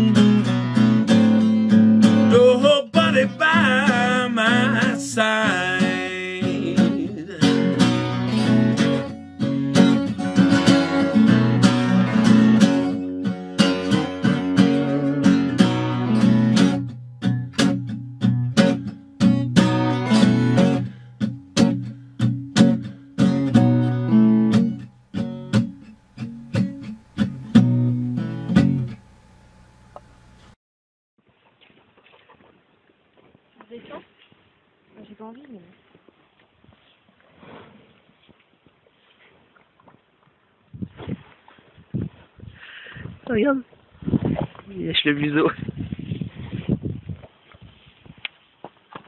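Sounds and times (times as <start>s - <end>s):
acoustic guitar playing: 0.0s - 30.6s.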